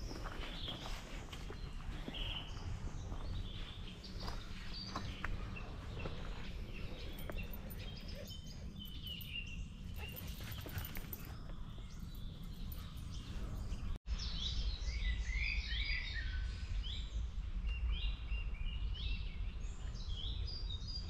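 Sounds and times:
low outdoor rush: 0:00.0 - 0:14.0
songbirds chirping and singing: 0:00.0 - 0:21.0.

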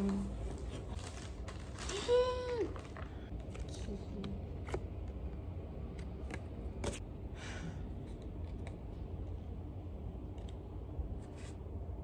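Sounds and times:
paper rustling: 0:00.0 - 0:03.9
low room hum: 0:00.0 - 0:12.0.

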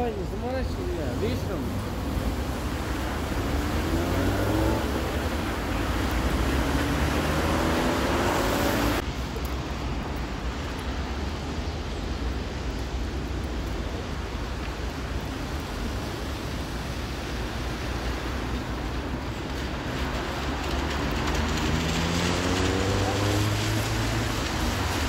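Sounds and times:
traffic rumble: 0:00.0 - 0:25.0
tyre hiss on wet road: 0:00.0 - 0:25.0
vehicle engine accelerating: 0:03.2 - 0:09.0, 0:20.0 - 0:25.0.

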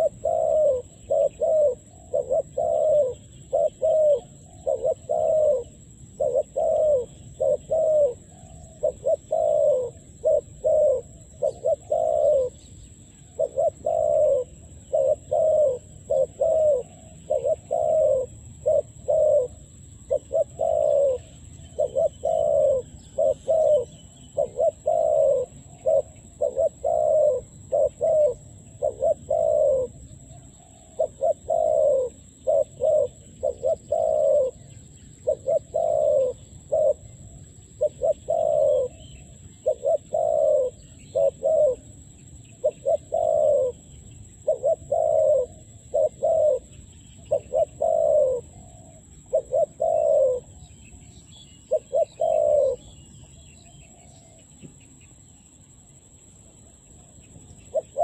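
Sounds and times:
dove cooing: 0:00.0 - 0:54.5, 0:57.6 - 0:58.0.

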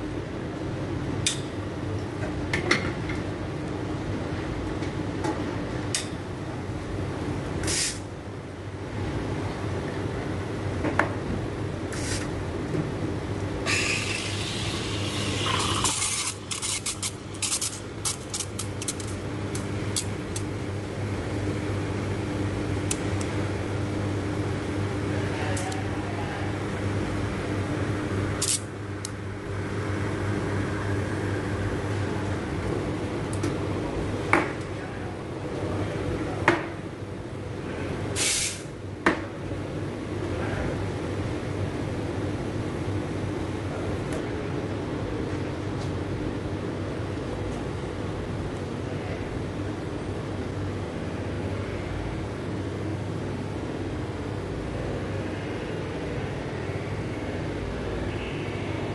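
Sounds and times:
espresso machine hum: 0:13.0 - 0:33.9
steam wand hissing in milk: 0:13.7 - 0:17.0.

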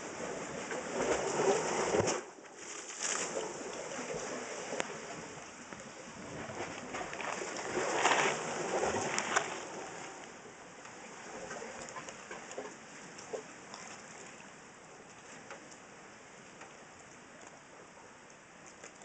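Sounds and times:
sea water washing over rocks: 0:00.0 - 0:15.5.

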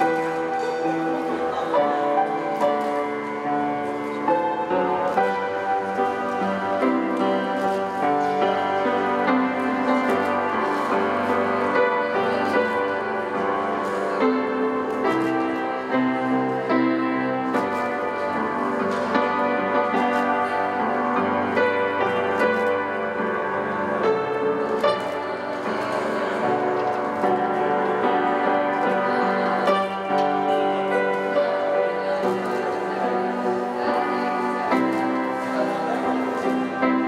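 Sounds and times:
instrumental piano music: 0:00.0 - 0:37.0.

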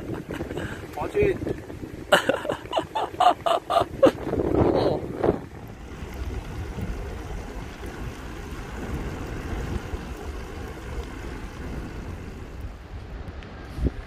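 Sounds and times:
wind buffeting microphone: 0:00.0 - 0:14.0
low rumble: 0:03.4 - 0:14.0.

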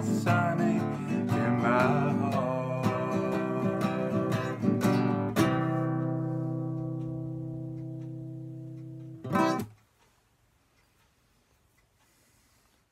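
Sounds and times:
man singing: 0:00.0 - 0:06.1
acoustic guitar strumming: 0:00.0 - 0:09.8.

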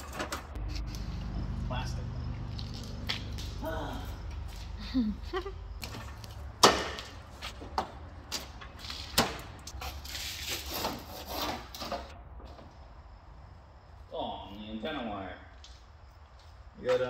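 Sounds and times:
scraping and rubbing: 0:08.8 - 0:12.1.

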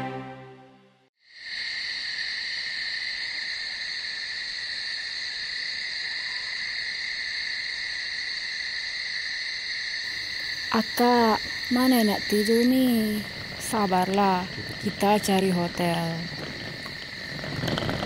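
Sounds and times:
night insects chirring: 0:01.2 - 0:18.0.

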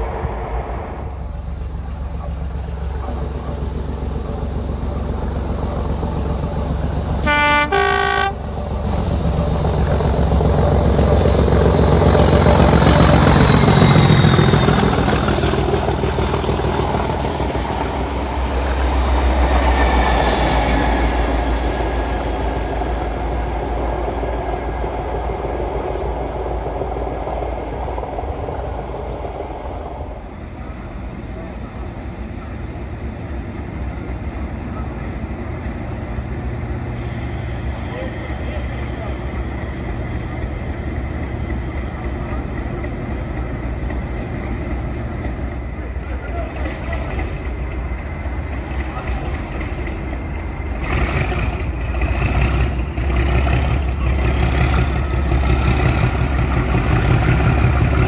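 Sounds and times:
diesel locomotive engine passing: 0:00.0 - 0:58.0
two-tone train horn: 0:07.2 - 0:08.4.

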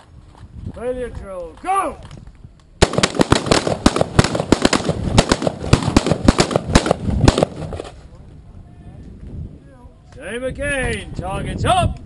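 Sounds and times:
rapid overlapping gunfire: 0:02.8 - 0:07.8.

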